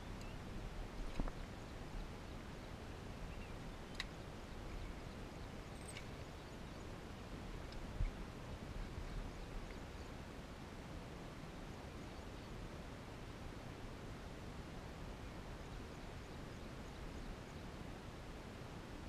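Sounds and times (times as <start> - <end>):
faint high clicks and chirps: 0.0 - 0.4, 3.3 - 6.4.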